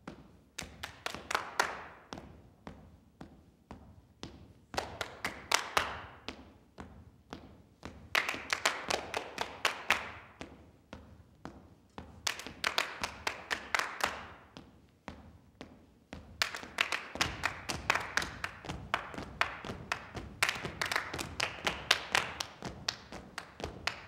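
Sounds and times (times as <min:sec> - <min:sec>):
hand claps: 0:00.6 - 0:02.0, 0:04.7 - 0:06.3, 0:08.1 - 0:10.4, 0:12.2 - 0:14.4, 0:16.4 - 0:24.0
feet tapping on stage floor: 0:02.0 - 0:24.0.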